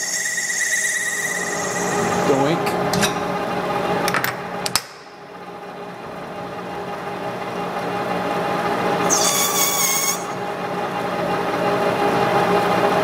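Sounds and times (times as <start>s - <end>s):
cutting tool squealing on plastic: 0.0s - 2.2s, 9.0s - 10.4s
lathe humming and whining: 0.0s - 4.6s, 5.2s - 13.0s.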